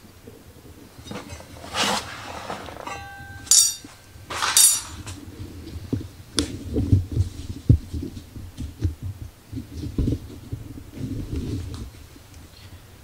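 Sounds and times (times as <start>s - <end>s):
metallic scrapes and clinks: 1.0s - 5.2s.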